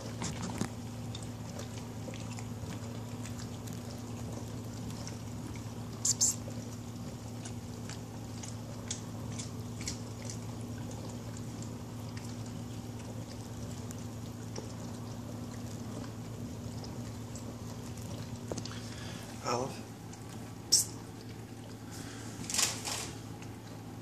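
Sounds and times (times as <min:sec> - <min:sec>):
dog crunching a treat: 0:00.0 - 0:18.9
dog chewing and licking: 0:00.0 - 0:21.9
steady low hum: 0:00.0 - 0:24.0.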